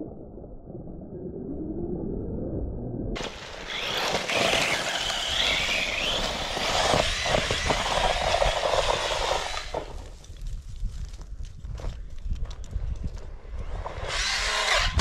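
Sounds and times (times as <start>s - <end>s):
electric motor whine: 3.2s - 10.1s, 13.6s - 15.0s
tyres spraying gravel: 3.2s - 10.2s.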